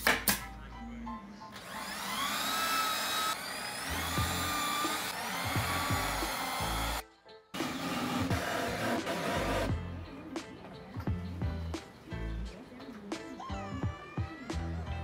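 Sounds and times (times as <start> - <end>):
background music: 0.0 - 15.0
power tool motor whining: 1.6 - 7.0.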